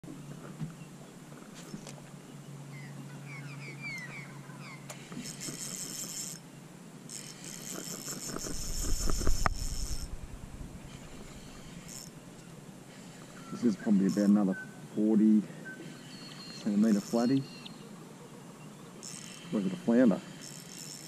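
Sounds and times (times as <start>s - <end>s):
small birds chirping: 1.7s - 5.5s, 8.4s - 20.4s
fishing reel whirring: 5.1s - 6.4s, 7.1s - 12.2s, 12.9s - 14.4s, 16.0s - 17.4s, 19.0s - 21.0s
handling knocks and rumble: 8.6s - 11.6s.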